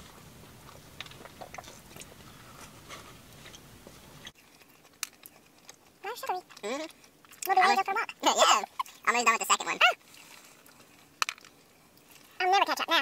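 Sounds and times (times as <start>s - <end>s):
people chewing: 0.0s - 9.1s, 10.0s - 12.4s.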